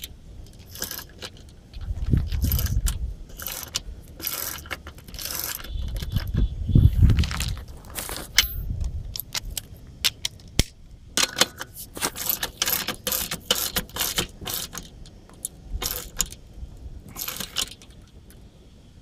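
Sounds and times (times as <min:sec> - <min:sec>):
ratchet pawls clicking: 0:00.0 - 0:06.4, 0:11.2 - 0:16.4, 0:17.1 - 0:18.1.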